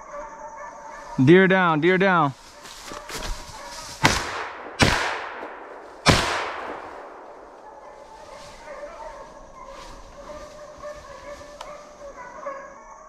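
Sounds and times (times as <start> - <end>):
hounds baying faintly: 0.0 - 4.0, 6.8 - 13.0
shotgun shots echoing: 4.0 - 8.2.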